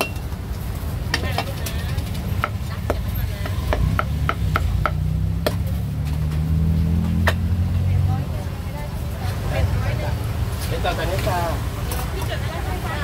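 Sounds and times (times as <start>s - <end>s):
cleaver chopping on wooden block: 2.4s - 5.7s.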